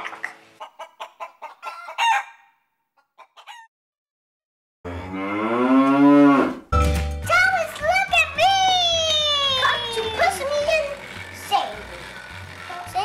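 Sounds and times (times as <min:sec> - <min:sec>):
chickens clucking: 0:00.0 - 0:03.7
rooster crowing: 0:01.6 - 0:02.5.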